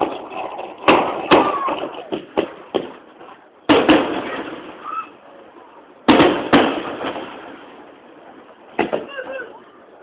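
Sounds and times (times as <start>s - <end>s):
firework shells bursting: 0.0s - 4.9s, 6.1s - 7.9s.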